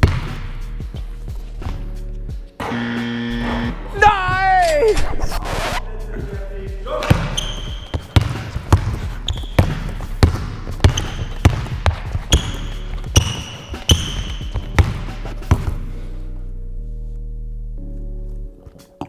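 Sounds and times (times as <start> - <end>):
basketball bouncing on wooden floor: 0.0 - 0.4, 7.1 - 15.8
sneakers squeaking: 7.0 - 15.8.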